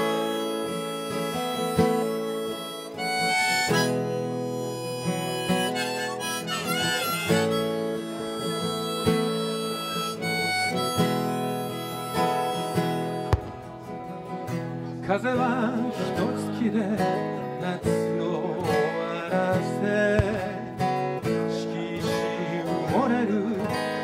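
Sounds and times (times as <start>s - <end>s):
harmonica long notes: 0.0s - 14.6s
acoustic guitar: 0.0s - 24.0s.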